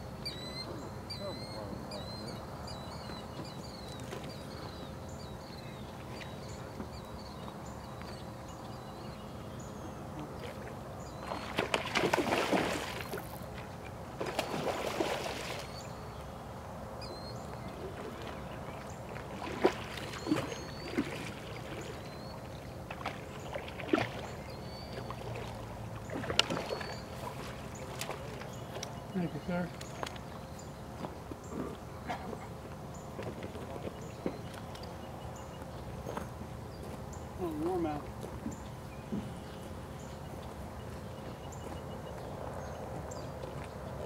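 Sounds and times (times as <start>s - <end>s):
faint bird chirps: 0.2s - 10.3s
fish splashing at surface: 11.3s - 13.3s.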